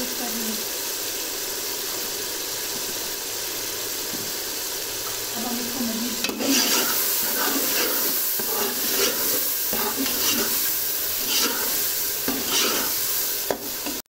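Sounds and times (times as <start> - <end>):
sauce sizzling in oil: 0.0 - 14.0
ladle scraping metal pot: 6.2 - 14.0.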